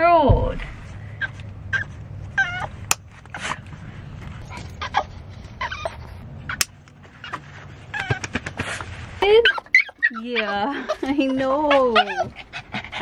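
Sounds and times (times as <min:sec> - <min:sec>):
low steady hum: 0:00.0 - 0:13.0
dog whining: 0:01.2 - 0:03.6, 0:04.4 - 0:06.6, 0:07.2 - 0:08.6, 0:09.2 - 0:13.0.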